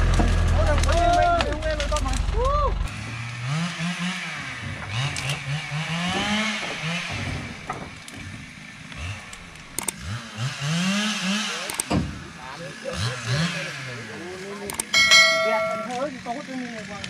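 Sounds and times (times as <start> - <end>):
wooden knocks of logs: 0.0 - 2.1, 4.6 - 9.8
engine revving: 0.0 - 17.0.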